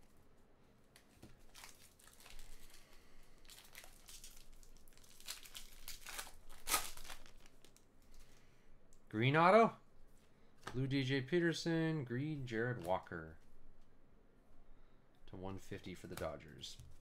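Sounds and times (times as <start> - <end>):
foil wrapper crinkling: 1.4 - 7.8
foil ripping: 3.4 - 7.8.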